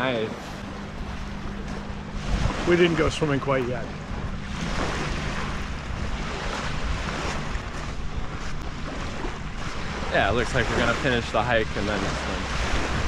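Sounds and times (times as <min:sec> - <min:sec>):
steady low hum: 0:00.0 - 0:13.0
wind buffeting microphone: 0:00.0 - 0:13.0
waves lapping on pebble shore: 0:04.4 - 0:13.0.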